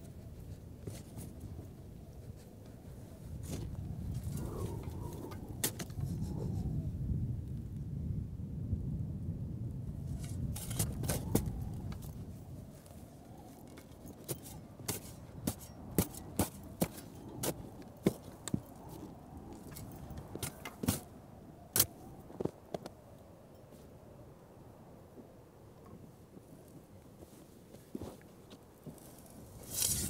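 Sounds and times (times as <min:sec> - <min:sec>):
spade crunching into stony soil: 0:10.1 - 0:12.1, 0:14.0 - 0:19.0, 0:19.6 - 0:21.1, 0:21.7 - 0:22.0, 0:29.0 - 0:30.0.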